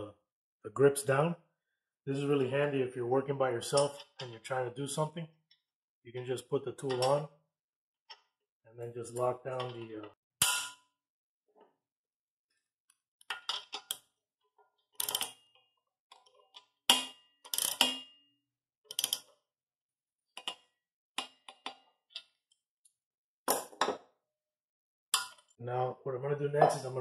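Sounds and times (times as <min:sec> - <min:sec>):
ratchet wrench clicking: 0:15.0 - 0:15.3.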